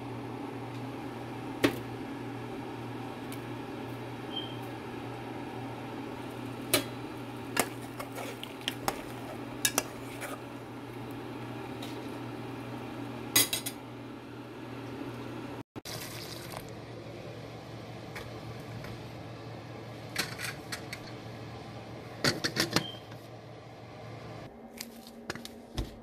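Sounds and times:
steady low hum: 0:00.0 - 0:15.6.

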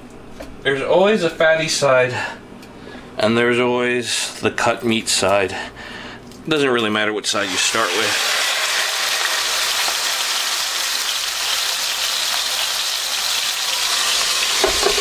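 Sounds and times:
meat sizzling in oil: 0:07.4 - 0:15.0.

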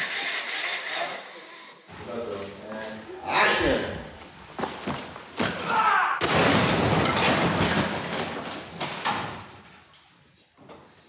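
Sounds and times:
cardboard boxes crashing down: 0:05.3 - 0:09.6.

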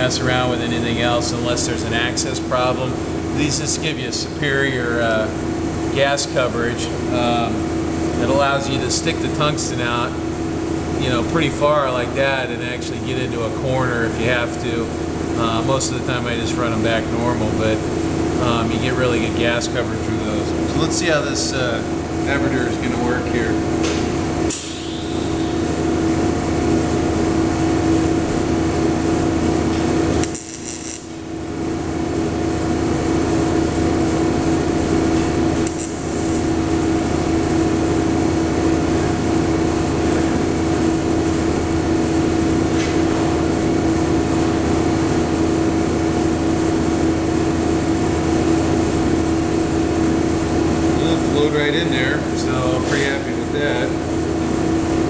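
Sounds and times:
welding arc buzzing: 0:24.2 - 0:44.8.

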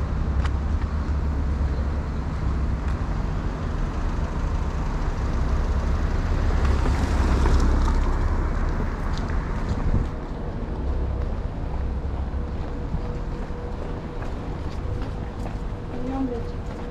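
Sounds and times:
low traffic rumble: 0:00.0 - 0:16.9
car passing by: 0:04.4 - 0:10.1.

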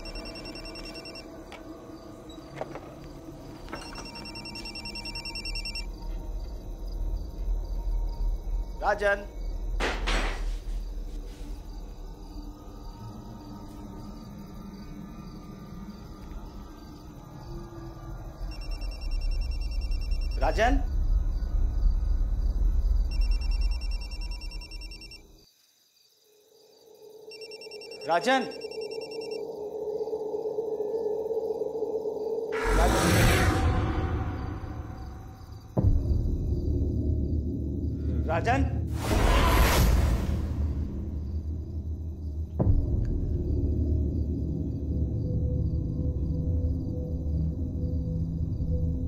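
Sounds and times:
mobile phone ringing: 0:00.0 - 0:01.2, 0:03.8 - 0:05.9, 0:23.2 - 0:25.2, 0:27.3 - 0:29.4.

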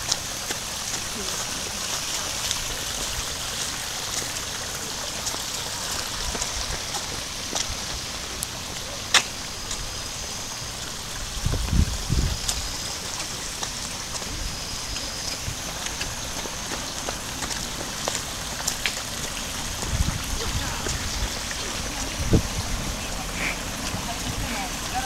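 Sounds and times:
brook trickling and splashing: 0:00.0 - 0:25.0
low rumble on microphone: 0:11.2 - 0:13.0, 0:19.4 - 0:25.0.

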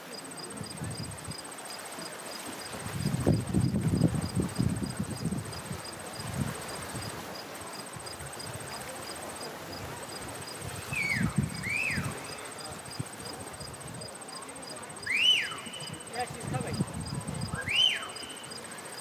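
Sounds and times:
slower insect chirp: 0:00.0 - 0:19.0
insect high trill: 0:10.1 - 0:13.8, 0:15.0 - 0:19.0.

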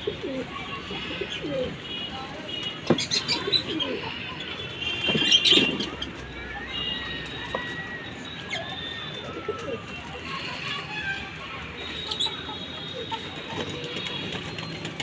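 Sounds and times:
birds chirping: 0:01.0 - 0:15.0
pigeons cooing: 0:03.1 - 0:04.4.

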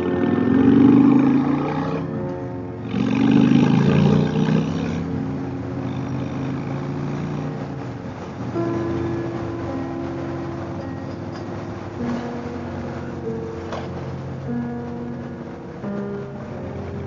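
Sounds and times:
motorcycle engine accelerating: 0:00.0 - 0:02.2, 0:02.8 - 0:08.0.

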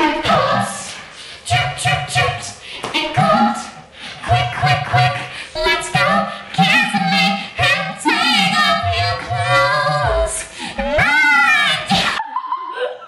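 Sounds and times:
girl singing a cappella: 0:00.0 - 0:12.2.

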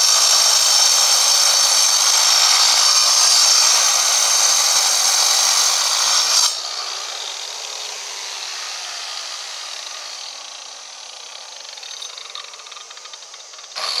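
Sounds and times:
angle grinder cutting stone: 0:00.0 - 0:14.0.

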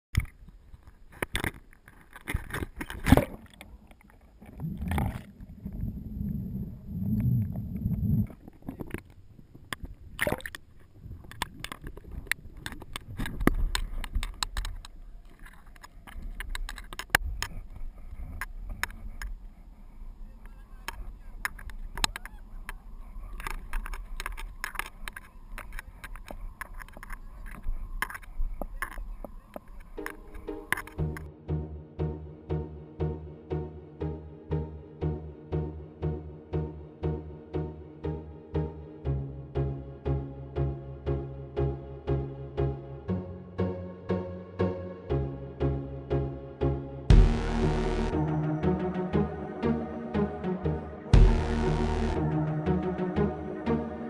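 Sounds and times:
wind rumble on microphone: 0:04.4 - 0:15.4.

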